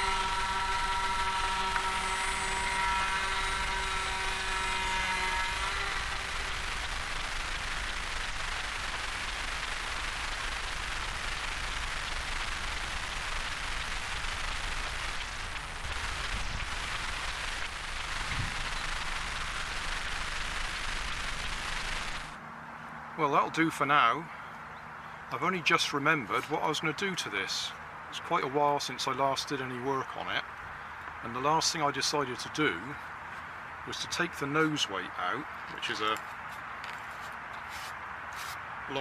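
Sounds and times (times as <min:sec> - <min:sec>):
electric motors and propellers whining: 0:00.0 - 0:22.8
steady rushing noise: 0:05.5 - 0:22.4.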